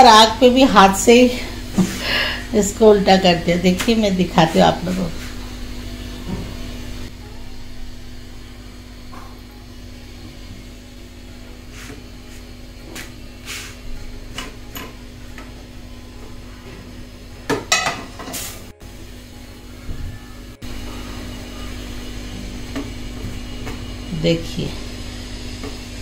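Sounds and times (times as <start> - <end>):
steady hum: 0.0 - 26.0.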